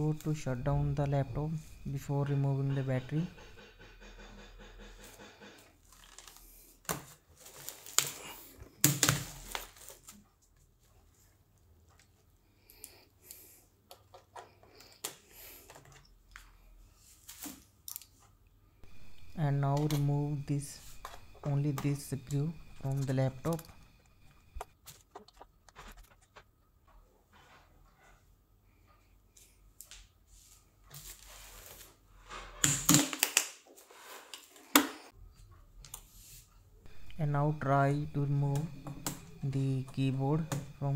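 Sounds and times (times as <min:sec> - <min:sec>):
plastic rustle: 0:05.8 - 0:11.2.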